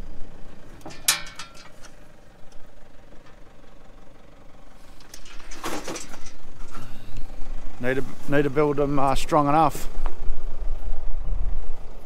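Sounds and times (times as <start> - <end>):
quad bike engine idling: 0.0 - 12.0
rattling clatter: 0.6 - 2.2, 4.8 - 7.3.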